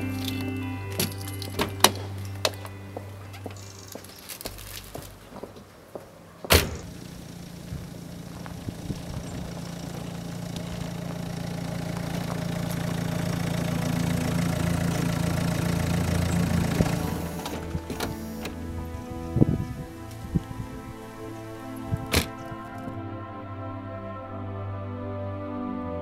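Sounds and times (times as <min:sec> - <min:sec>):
car door slamming: 0:06.5 - 0:07.0, 0:22.1 - 0:22.4
car engine running: 0:06.7 - 0:19.4.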